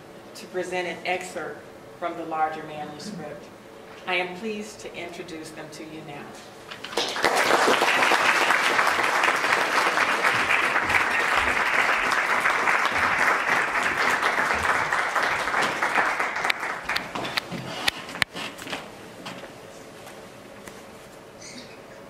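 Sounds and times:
audience applauding: 6.9 - 17.5.

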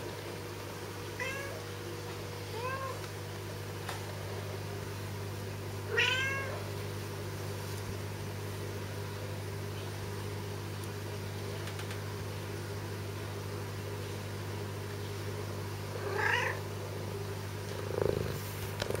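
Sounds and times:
steady low hum: 0.0 - 19.0
kitten mewing: 5.9 - 6.6, 16.0 - 16.6.

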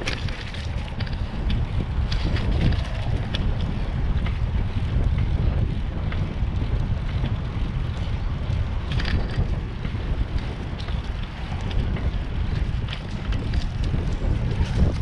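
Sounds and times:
light clicks and rattles: 0.0 - 4.4, 6.1 - 15.0
wind buffeting microphone: 0.0 - 15.0.

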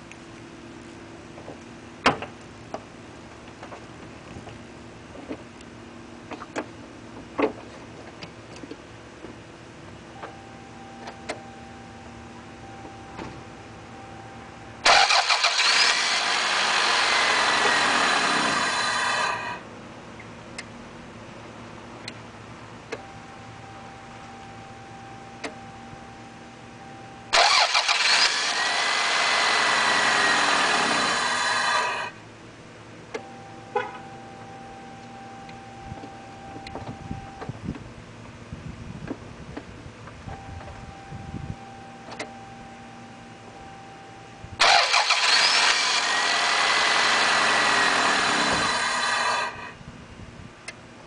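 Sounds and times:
car engine starting and running: 0.0 - 51.0
faint steady hum: 0.0 - 51.0
engine hiss and faint whistle: 9.6 - 16.3, 17.5 - 28.6, 29.6 - 46.1.

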